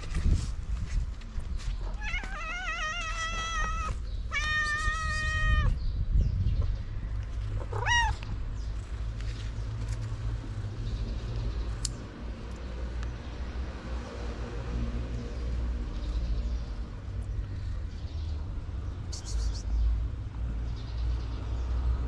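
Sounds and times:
cat meowing: 1.9 - 5.8, 7.6 - 8.3.

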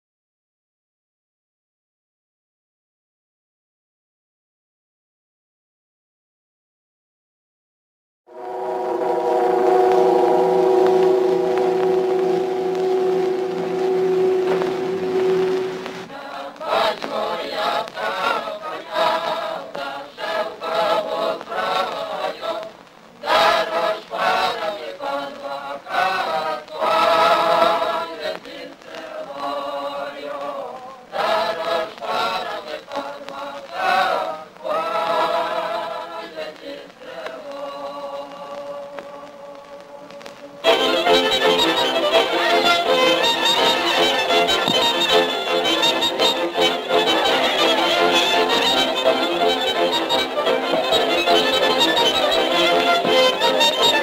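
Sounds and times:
held musical tone: 8.3 - 19.5, 39.8 - 54.0
choir singing slowly: 8.3 - 54.0.

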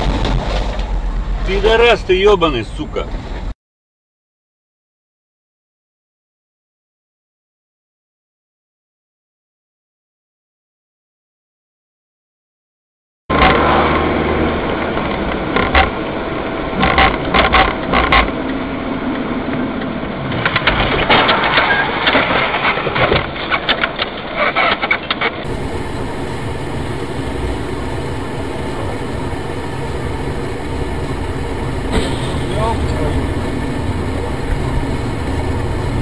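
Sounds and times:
vehicle interior hum: 0.0 - 3.5, 25.4 - 36.0
car engine and road noise: 0.0 - 3.6, 13.3 - 36.0.

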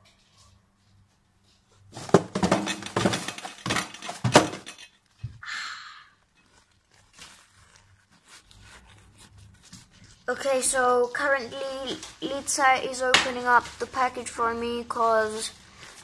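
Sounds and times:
paper towel crumpling: 6.2 - 16.0.

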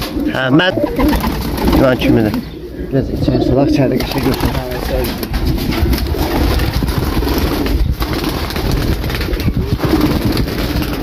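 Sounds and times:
pigeons cooing: 0.0 - 11.0.

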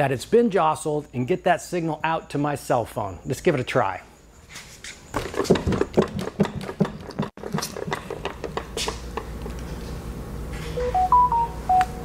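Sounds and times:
phone alert tone: 10.8 - 12.0.

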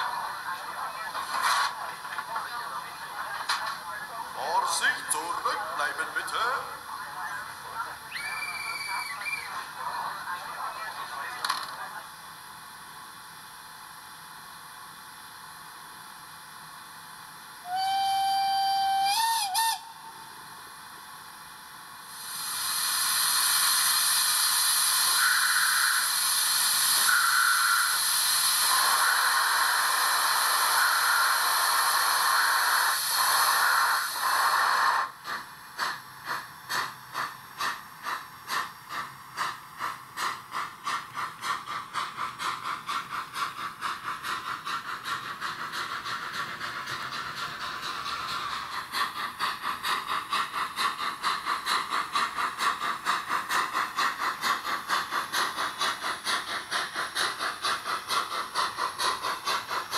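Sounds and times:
steam locomotive exhaust chuffs: 12.2 - 59.9
steam whistle: 17.6 - 20.2, 25.1 - 26.2, 27.0 - 28.0
hiss of steam: 22.0 - 59.9.

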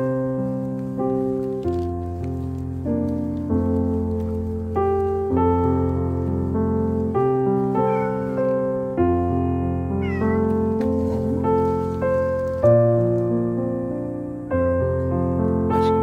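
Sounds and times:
piano music: 0.0 - 16.0
cat meowing: 7.6 - 8.8, 9.8 - 10.7.

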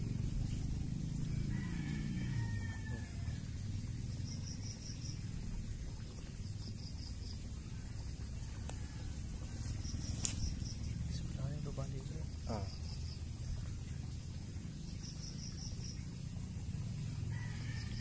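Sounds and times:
rooster crowing: 1.2 - 3.8, 8.4 - 10.0, 17.1 - 18.0.

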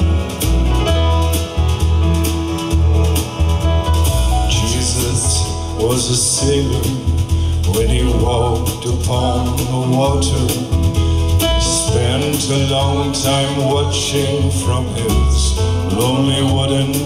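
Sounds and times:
song with singing over loudspeaker: 4.1 - 17.0.

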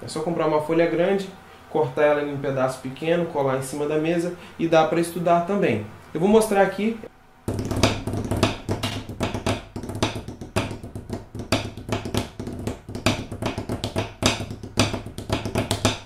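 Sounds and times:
drumsticks on foam practice pad: 7.5 - 16.0.

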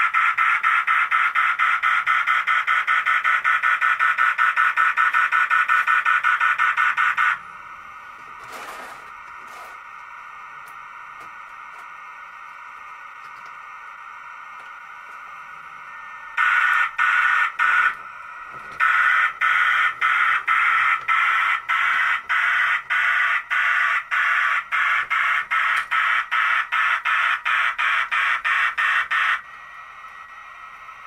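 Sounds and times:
steam locomotive chuffing: 0.0 - 7.4.

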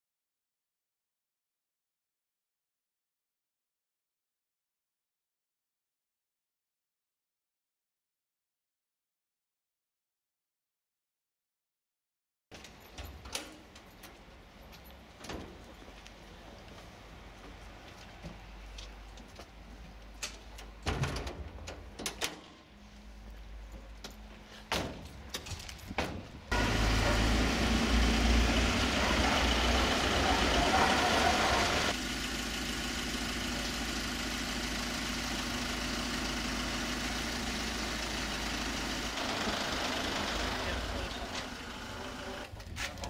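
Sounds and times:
vehicle engine idling: 26.5 - 42.4.

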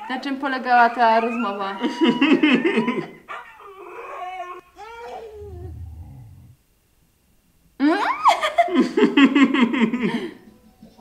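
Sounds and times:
dog whining howl: 0.8 - 6.6
woman laughing loudly: 1.8 - 3.2, 7.8 - 10.3.

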